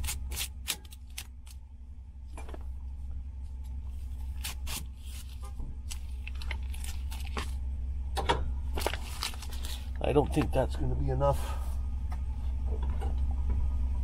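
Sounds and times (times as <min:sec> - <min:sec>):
onion skin crackling: 0:00.0 - 0:01.6, 0:04.0 - 0:07.6, 0:08.7 - 0:10.5
steady low hum: 0:00.0 - 0:14.0.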